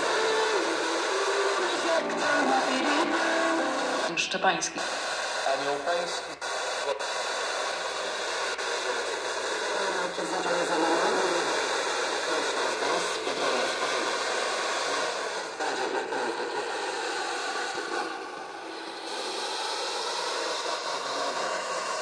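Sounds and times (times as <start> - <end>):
radio static hiss: 0.0 - 16.6.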